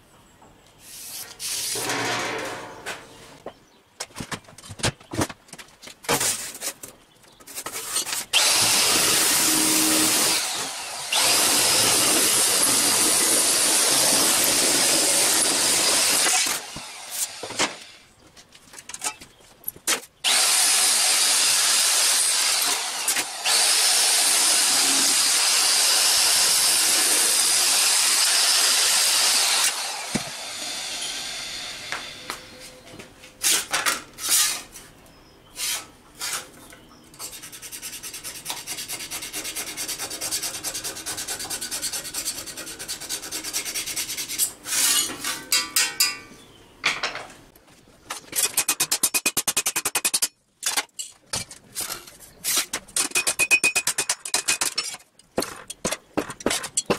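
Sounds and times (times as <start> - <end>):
abrasive rasping on sheet steel: 0.8 - 3.4, 35.5 - 36.6, 37.2 - 45.6
handling of steel sheet: 1.2 - 3.4.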